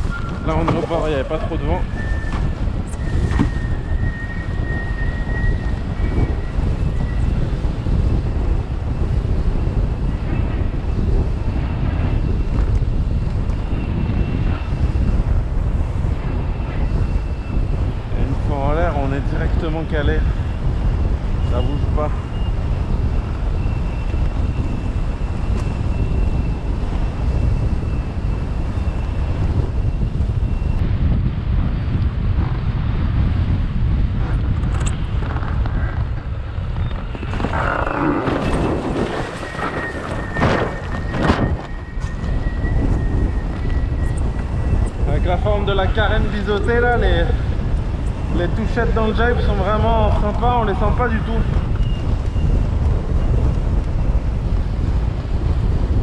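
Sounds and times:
wind buffeting microphone: 0:00.0 - 0:56.0
faint high whistle: 0:01.9 - 0:07.2, 0:39.4 - 0:45.4
faint thin whistle: 0:02.0 - 0:07.2.

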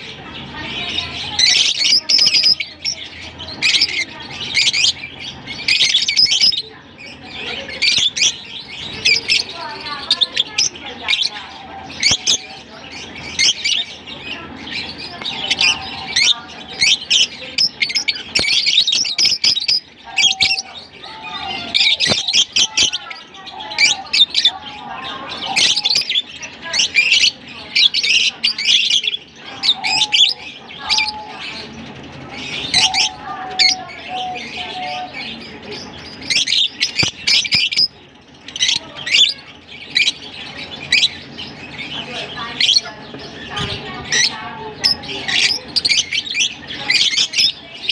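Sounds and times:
birds chirping and squawking: 0:00.0 - 0:47.9.

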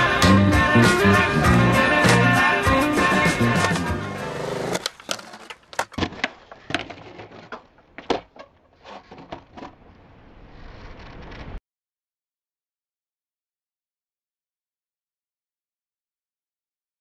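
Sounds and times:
music: 0:00.0 - 0:04.8
skateboard wheels rolling: 0:03.4 - 0:11.6.

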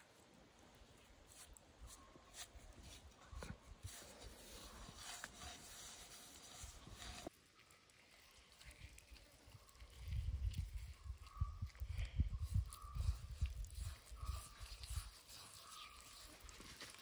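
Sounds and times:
fingers rubbing powder in a bowl: 0:03.8 - 0:07.3, 0:12.4 - 0:16.5.

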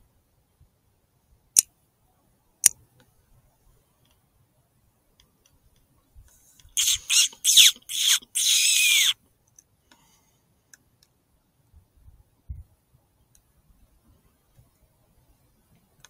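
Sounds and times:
squealing fox call whistle: 0:06.8 - 0:09.2.

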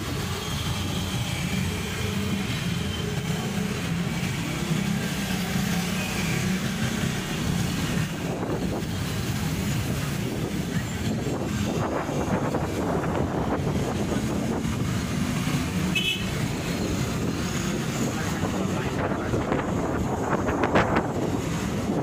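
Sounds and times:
motorcycle and car engines: 0:00.0 - 0:22.0
wind on microphone: 0:07.9 - 0:15.8, 0:16.4 - 0:22.0.

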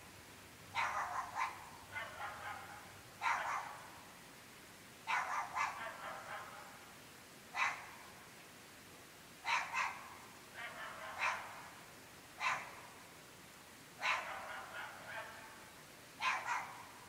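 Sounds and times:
dogs barking: 0:00.7 - 0:04.0, 0:05.1 - 0:06.8, 0:07.6 - 0:08.0, 0:09.4 - 0:11.8, 0:12.4 - 0:12.8, 0:14.0 - 0:15.6, 0:16.2 - 0:17.0.

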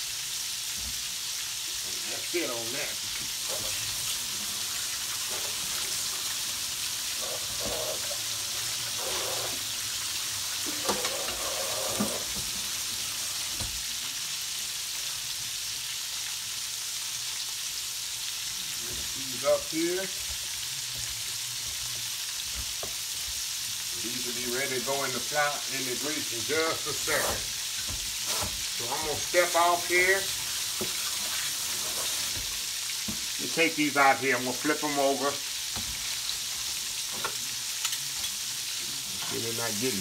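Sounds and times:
chicken sizzling in hot oil: 0:00.0 - 0:40.0.

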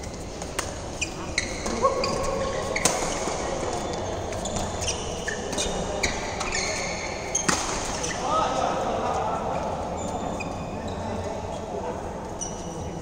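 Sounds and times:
shoes squeaking on court floor: 0:00.0 - 0:08.3, 0:09.6 - 0:13.0
racket hitting shuttlecock: 0:00.3 - 0:03.5, 0:04.3 - 0:08.2.

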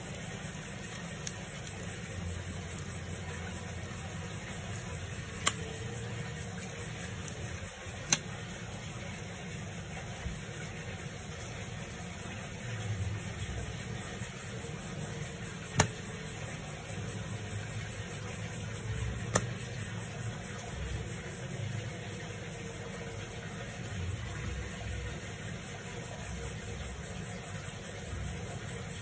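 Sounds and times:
sharp clicks: 0:03.8 - 0:09.0, 0:15.7 - 0:16.5, 0:18.5 - 0:19.7.

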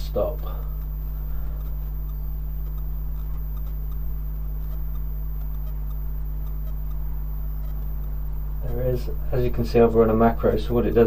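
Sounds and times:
stepper motors humming: 0:00.0 - 0:11.0
faint ticks: 0:00.4 - 0:08.8.

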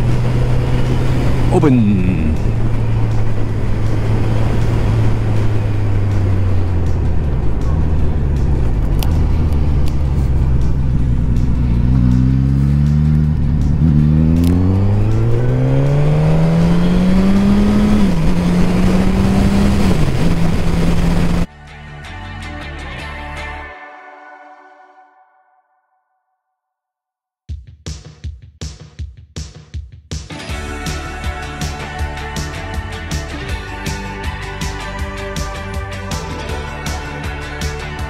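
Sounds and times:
motorcycle engine accelerating: 0:00.0 - 0:21.5
wind and road noise: 0:00.0 - 0:21.5.

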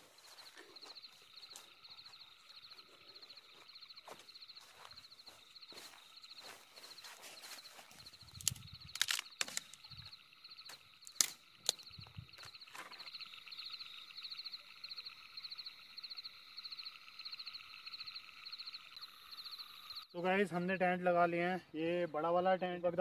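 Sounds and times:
sharp snaps and knocks: 0:08.4 - 0:09.8, 0:11.0 - 0:11.9.

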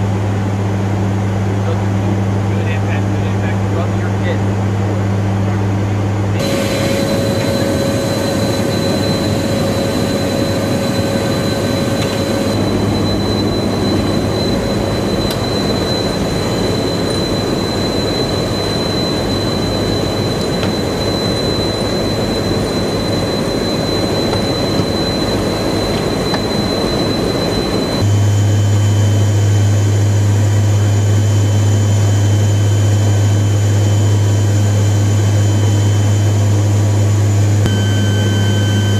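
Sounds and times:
cabin drone with deep hum: 0:00.0 - 0:38.9
thin high whistle: 0:37.7 - 0:38.9.

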